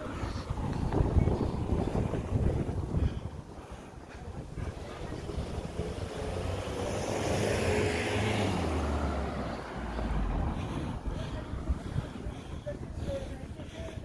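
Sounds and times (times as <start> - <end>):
car driving past: 5.1 - 11.8.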